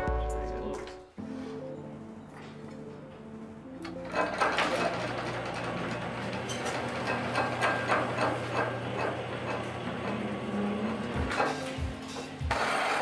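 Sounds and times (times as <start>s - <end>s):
wooden lathe mechanism clattering: 3.8s - 13.0s.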